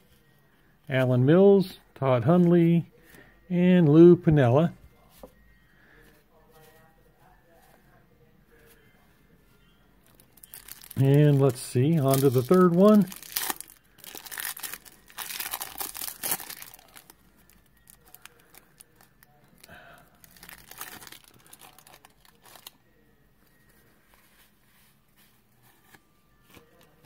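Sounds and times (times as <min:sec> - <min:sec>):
wax paper tearing and crinkling: 0:12.0 - 0:17.2.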